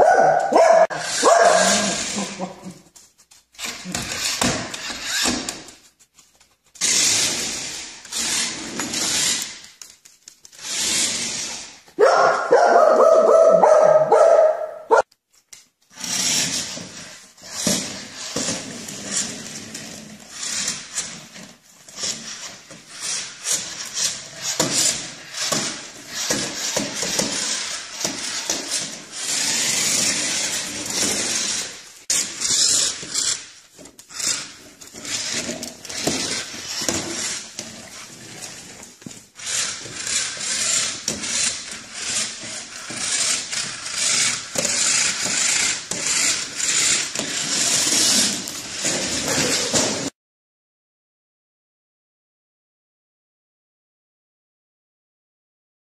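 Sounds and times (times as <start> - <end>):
toy car motor whirring: 0.8 - 2.4, 3.6 - 5.8, 6.8 - 11.8, 15.9 - 50.1.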